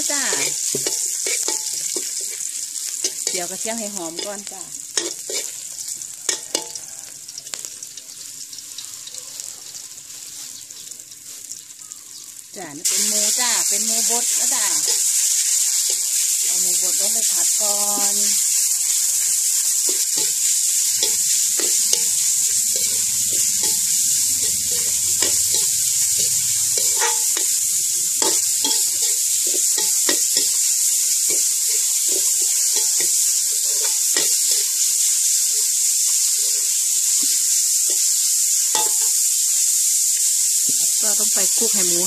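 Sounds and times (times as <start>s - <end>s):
meat sizzling in a wok: 0.0s - 42.0s
metal spatula scraping pan: 0.2s - 3.5s, 4.1s - 5.6s, 14.0s - 35.0s.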